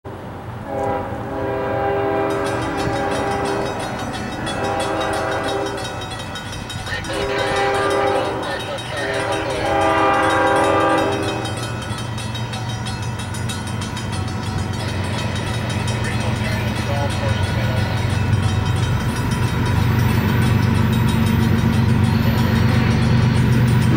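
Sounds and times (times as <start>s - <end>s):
low rumble of train: 0.0s - 23.9s
train horn blasts: 0.6s - 6.2s, 7.0s - 11.8s.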